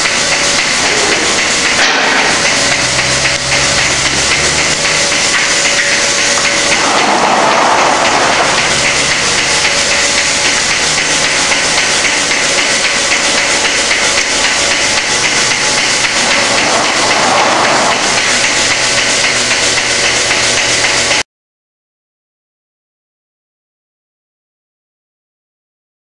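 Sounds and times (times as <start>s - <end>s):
milking machine hiss: 0.0s - 21.2s
pulsators clicking: 0.0s - 21.2s.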